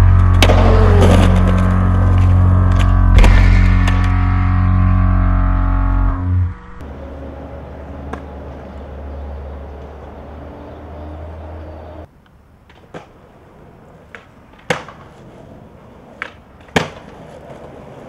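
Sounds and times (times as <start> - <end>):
steady low rumble: 0.0 - 7.0
skateboard clacking on concrete: 13.9 - 18.0.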